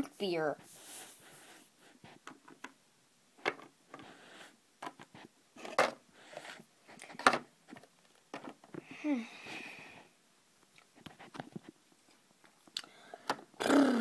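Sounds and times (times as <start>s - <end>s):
plastic toys clicking and knocking: 4.8s - 8.8s.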